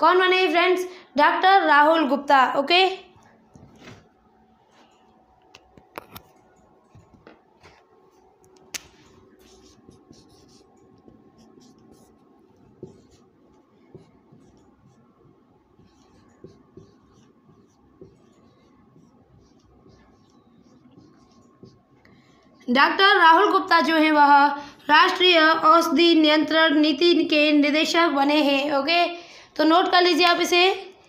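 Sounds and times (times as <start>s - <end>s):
marker writing on whiteboard: 8.8s - 23.5s
marker tap on whiteboard: 12.8s - 13.2s.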